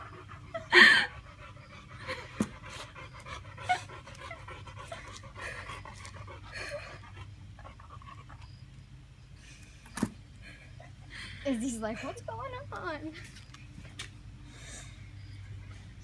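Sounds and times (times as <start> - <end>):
woman crying with panting breaths: 0.0 - 7.7.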